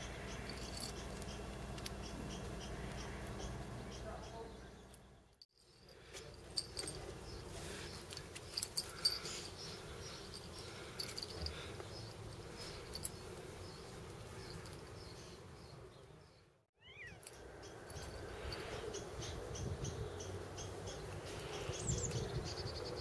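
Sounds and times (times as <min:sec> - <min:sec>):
outdoor background noise: 0:00.0 - 0:23.0
cat meowing faintly: 0:16.8 - 0:17.2.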